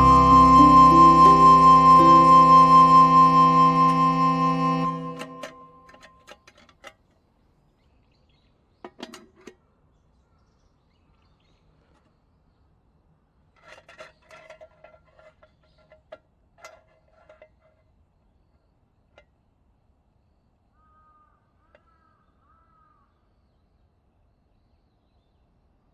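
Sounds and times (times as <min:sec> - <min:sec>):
background music: 0:00.0 - 0:05.8.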